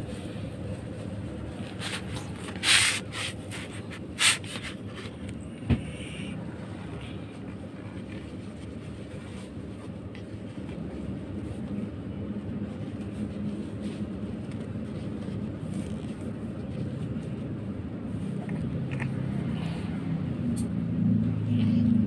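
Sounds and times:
tissue rubbing on fur: 0.0s - 5.1s, 7.3s - 18.3s
low background rumble: 0.0s - 22.0s.

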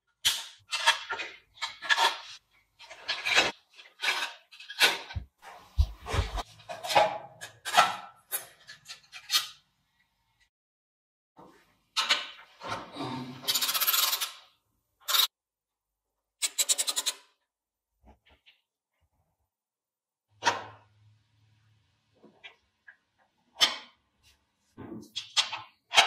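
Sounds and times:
metal parts rubbing and scraping: 0.7s - 9.6s, 13.4s - 14.4s, 15.0s - 15.3s, 16.4s - 17.2s.

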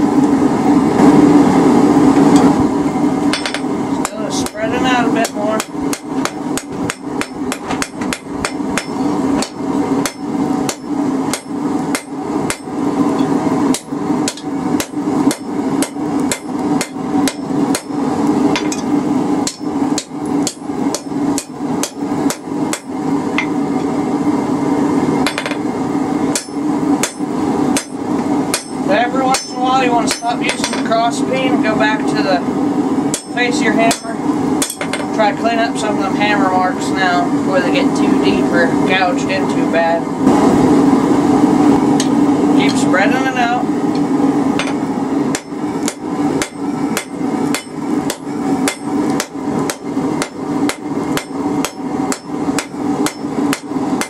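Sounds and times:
steady hum: 0.0s - 54.0s
hammer striking steel on anvil: 3.3s - 23.6s, 25.2s - 25.6s, 26.3s - 31.0s, 33.1s - 35.1s, 44.6s - 53.8s.

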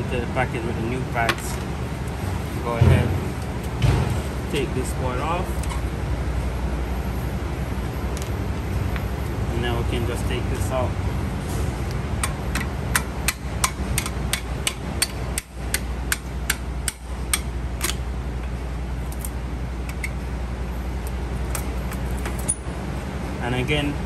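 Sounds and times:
steady low hum: 0.0s - 24.0s
sharp metallic clicks and taps: 12.2s - 18.0s.

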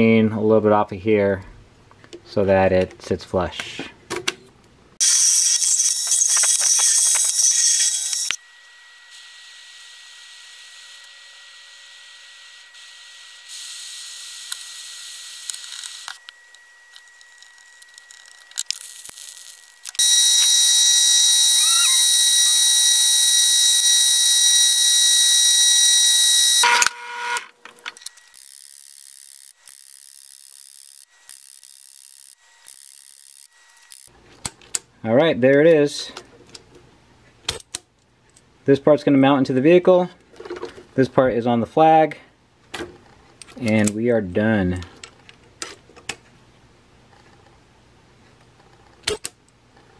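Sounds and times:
drill press whining: 19.8s - 29.8s.

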